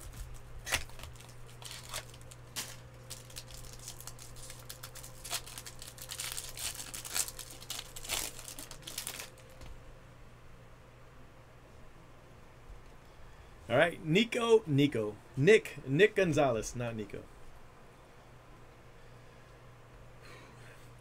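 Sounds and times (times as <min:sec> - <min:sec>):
foil wrapper crinkling and tearing: 0:00.0 - 0:09.7
steady low hum: 0:00.0 - 0:21.0.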